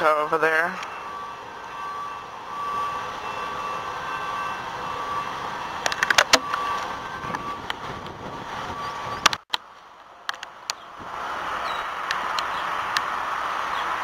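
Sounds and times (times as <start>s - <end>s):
truck backup alarm: 0.0s - 9.3s
diesel engine running: 0.0s - 14.0s.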